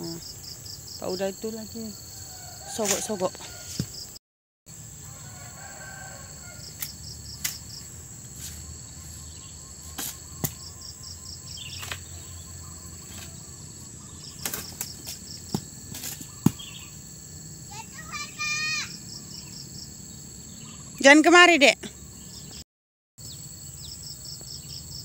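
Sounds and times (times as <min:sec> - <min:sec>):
insect chirps: 0:00.0 - 0:22.6, 0:23.2 - 0:25.0
insects trilling: 0:00.0 - 0:22.6, 0:23.2 - 0:25.0
pole knocking on tree: 0:10.0 - 0:10.7, 0:14.4 - 0:16.8.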